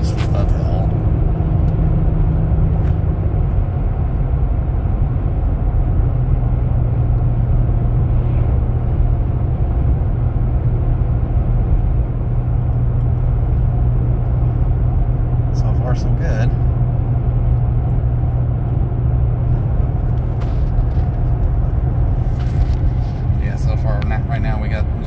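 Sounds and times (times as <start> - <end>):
low engine drone: 0.0 - 25.0
road and wind noise: 0.0 - 25.0.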